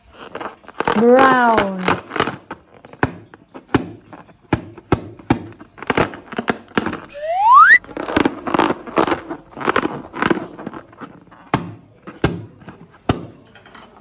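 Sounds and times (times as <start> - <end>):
rubber balloon squeaking: 7.0 - 10.9.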